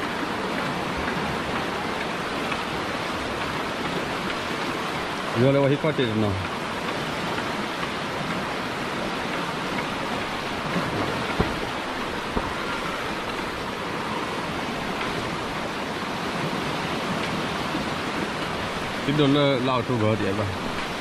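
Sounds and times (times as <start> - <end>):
river floodwater rushing: 0.0 - 21.0
brief thumps: 10.7 - 12.9.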